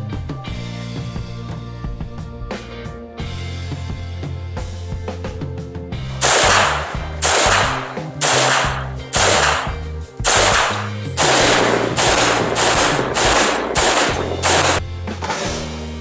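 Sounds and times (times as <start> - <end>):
background music with bass: 0.0 - 16.0
rifle shots with echo: 6.2 - 14.8.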